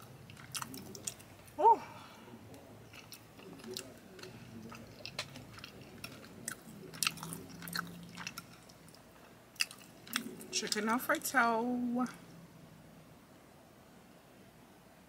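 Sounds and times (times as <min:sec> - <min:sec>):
person chewing food: 0:00.0 - 0:10.9.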